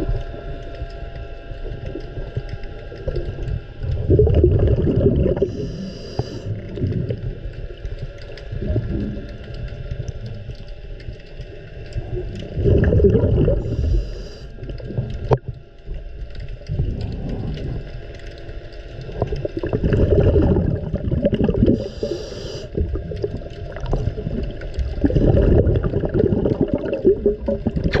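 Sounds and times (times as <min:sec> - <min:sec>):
underwater water churning: 0:00.0 - 0:28.0
hiss of bubbles: 0:03.0 - 0:07.3, 0:12.4 - 0:15.4, 0:19.0 - 0:28.0.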